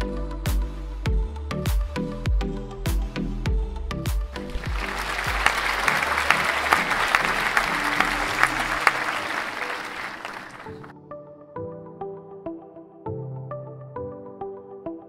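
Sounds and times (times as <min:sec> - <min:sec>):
crowd applause: 0:04.4 - 0:10.9.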